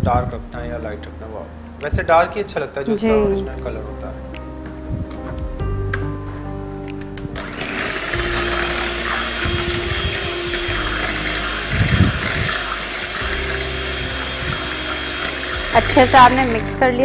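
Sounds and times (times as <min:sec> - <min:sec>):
electric hand mixer whining: 0:07.4 - 0:16.8.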